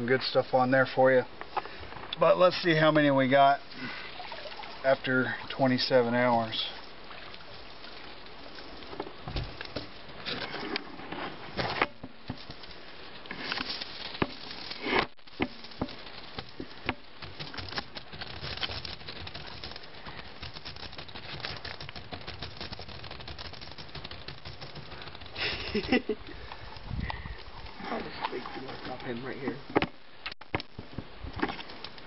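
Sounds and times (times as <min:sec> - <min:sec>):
steady hiss: 0:00.0 - 0:22.2, 0:23.1 - 0:32.0
water pattering: 0:02.1 - 0:10.6, 0:12.0 - 0:29.7
wire mesh clicking and rattling: 0:15.4 - 0:27.6.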